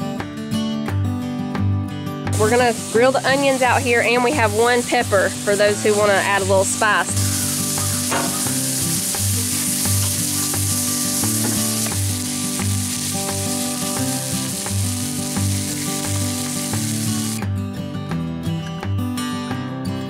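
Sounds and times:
background music with a beat: 0:00.0 - 0:03.0, 0:07.1 - 0:20.0
onions sizzling in oil: 0:02.4 - 0:17.4.

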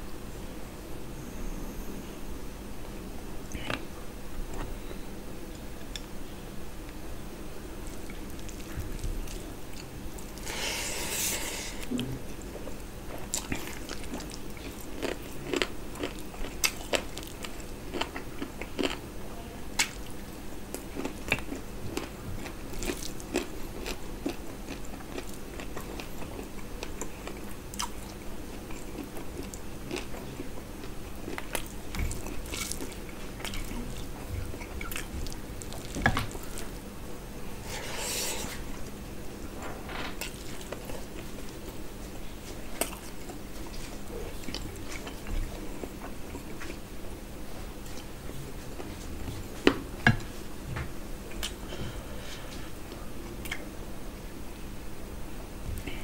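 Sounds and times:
chewing and wet mouth sounds: 0:11.8 - 0:19.0, 0:19.8 - 0:36.8, 0:40.2 - 0:46.8.

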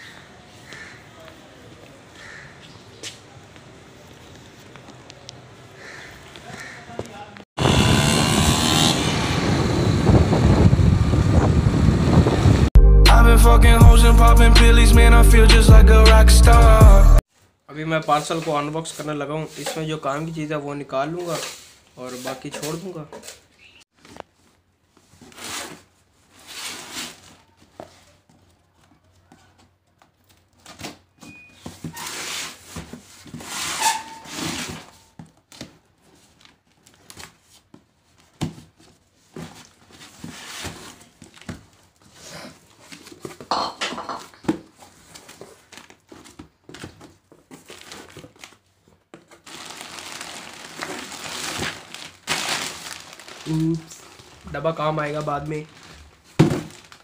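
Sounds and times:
cardboard flaps and plastic crinkling: 0:30.0 - 0:43.4, 0:44.4 - 0:57.0
tape tearing: 0:49.3 - 0:54.4.

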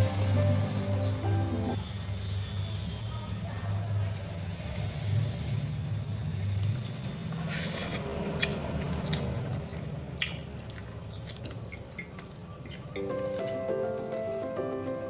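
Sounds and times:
music: 0:00.0 - 0:01.8, 0:13.0 - 0:15.0
fingers squishing wet rice: 0:07.6 - 0:13.0.

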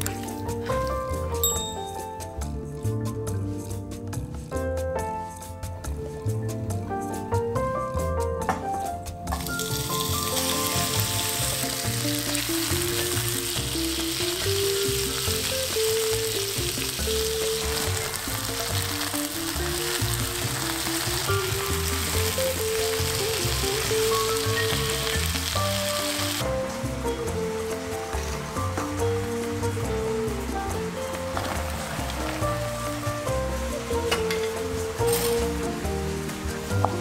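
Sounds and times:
background music: 0:00.0 - 0:37.0
chicken sizzling in hot oil: 0:09.3 - 0:37.0.

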